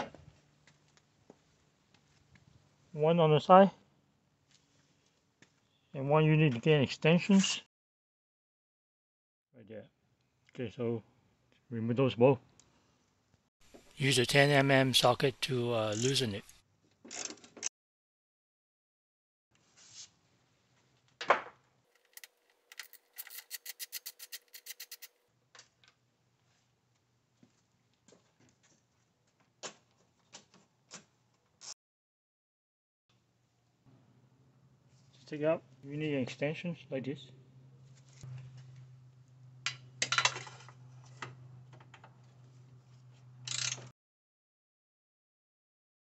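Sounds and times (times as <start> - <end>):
socket ratchet clicking: 22.0 - 25.1.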